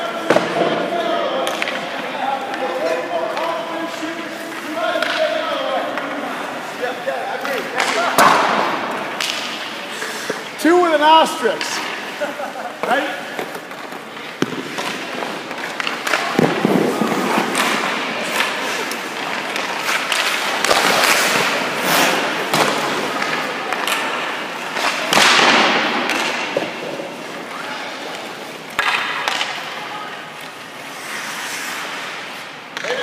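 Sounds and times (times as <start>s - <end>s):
sticks and pucks knocking: 1.4s - 6.2s, 7.4s - 9.6s, 12.8s - 16.8s, 22.5s - 27.3s, 28.7s - 29.7s
skate blades scraping on ice: 2.4s - 25.8s, 26.5s - 33.0s.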